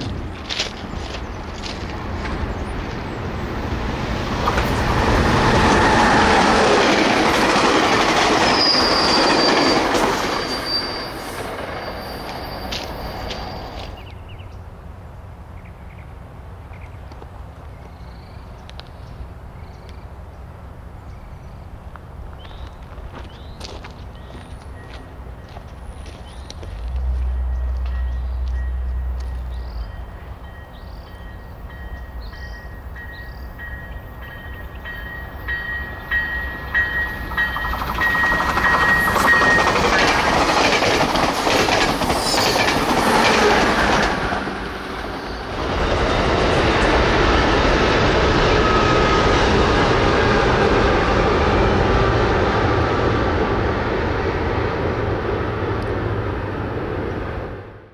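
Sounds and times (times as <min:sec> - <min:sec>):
train wheels rattling: 0:00.0 - 0:14.0, 0:23.1 - 0:51.8
train rumbling on wooden trestle: 0:00.0 - 0:14.1, 0:34.2 - 0:56.7.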